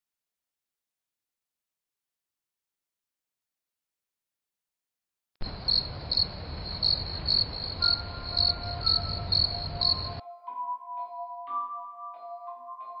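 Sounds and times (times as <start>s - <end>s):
crickets chirping: 5.4s - 10.2s.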